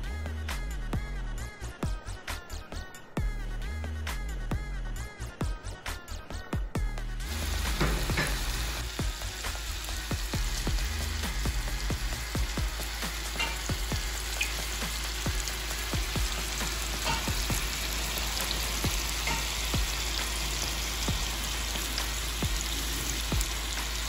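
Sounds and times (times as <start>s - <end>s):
meat sizzling in hot oil: 7.2s - 24.0s
oil popping and crackling: 7.3s - 24.0s.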